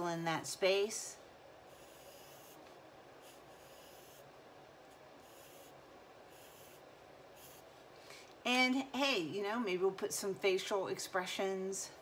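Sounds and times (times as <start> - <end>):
pencil scratching on paper: 1.7 - 2.6, 3.2 - 4.3, 5.2 - 6.8, 7.4 - 7.7.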